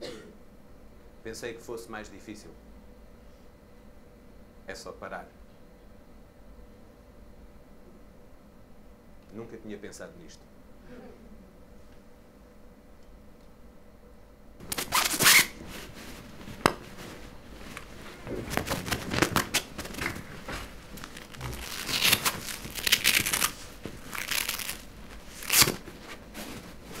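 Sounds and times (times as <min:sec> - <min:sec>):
lapel microphone rustling: 0:14.6 - 0:27.0.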